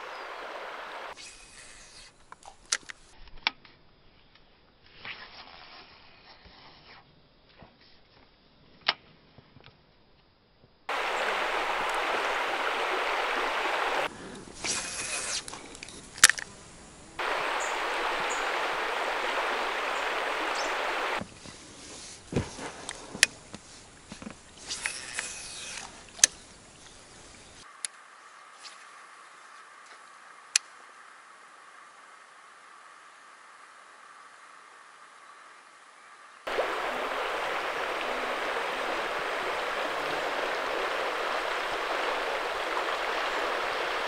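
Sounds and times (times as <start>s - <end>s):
steady rushing noise: 0.0s - 1.2s, 10.9s - 14.1s, 17.2s - 21.2s, 36.4s - 44.0s.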